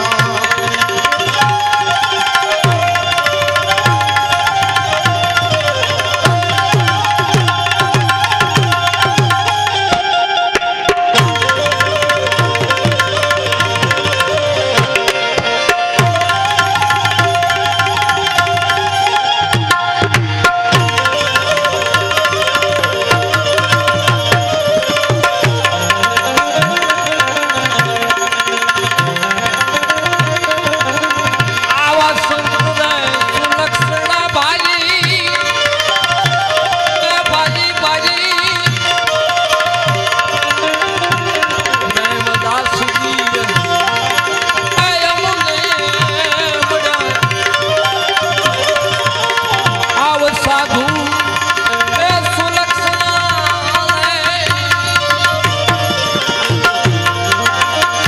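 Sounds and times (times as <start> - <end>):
held notes and wavering melody: 0.0 - 58.0
tabla playing a rhythm: 0.0 - 58.0.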